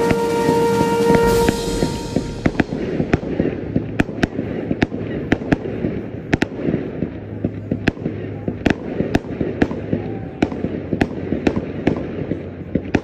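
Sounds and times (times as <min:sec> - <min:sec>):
fireworks bangs and pops: 0:02.9 - 0:13.0.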